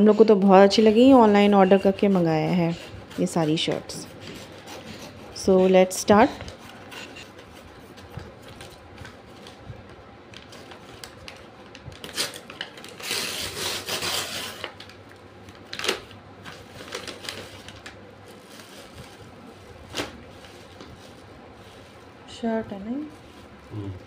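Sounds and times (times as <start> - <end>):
scissors cutting paper envelope: 0.5 - 9.6, 10.3 - 17.9
paper tearing and rustling: 10.4 - 19.2.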